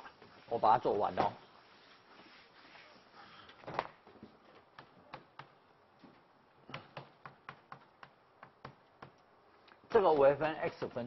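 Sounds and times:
chalk tapping on chalkboard: 4.7s - 5.6s, 6.7s - 9.2s.

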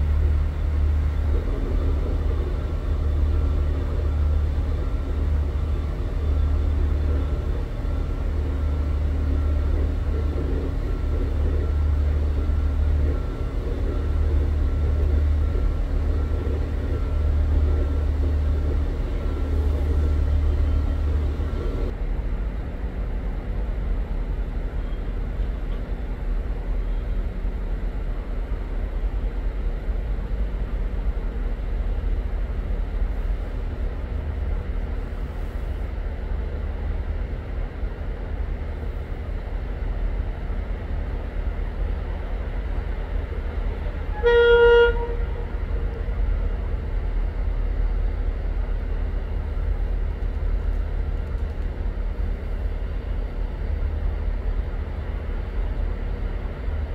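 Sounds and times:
steady low rumble: 0.0s - 56.9s
train horn toot: 44.0s - 46.0s.

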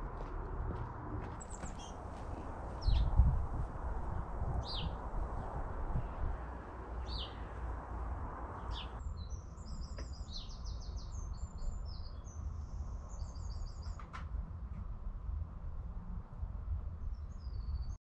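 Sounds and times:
high repeated bird song: 1.4s - 3.4s, 4.5s - 7.8s, 8.4s - 14.1s, 17.1s - 18.0s.

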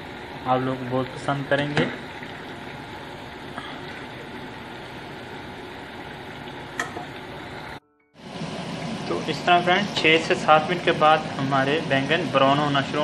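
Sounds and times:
oil sizzling: 0.0s - 13.0s.

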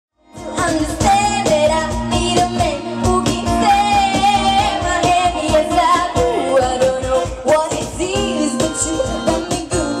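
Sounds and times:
singing over music: 0.4s - 10.0s
steady beat: 6.2s - 8.3s.

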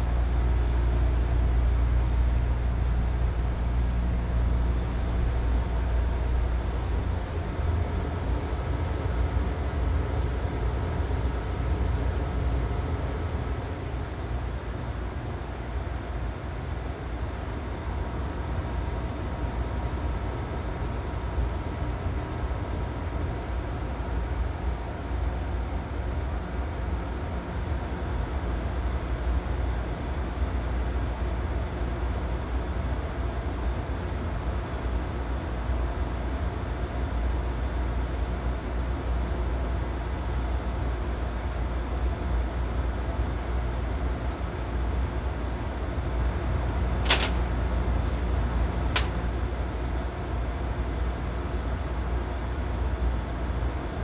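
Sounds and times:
furnace burner rumbling: 40.3s - 53.9s
sharp clicks: 47.0s - 47.4s.

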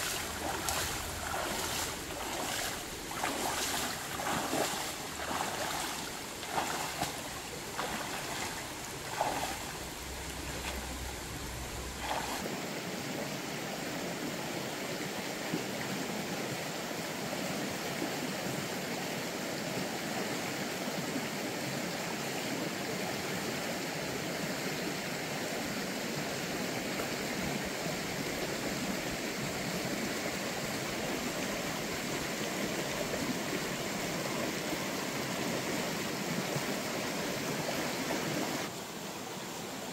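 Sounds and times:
footsteps splashing in stream: 0.0s - 12.5s
flowing stream water: 0.0s - 39.9s.

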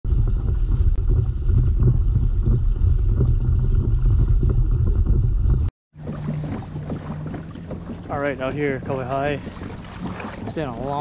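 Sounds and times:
water rushing past kayak hull: 6.0s - 11.0s.

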